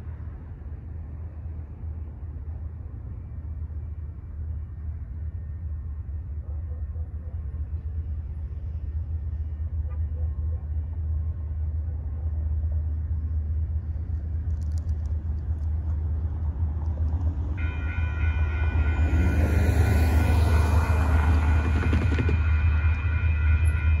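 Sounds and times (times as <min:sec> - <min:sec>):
freight train rumble: 0:00.0 - 0:24.0
railroad crossing warning bell: 0:17.6 - 0:24.0.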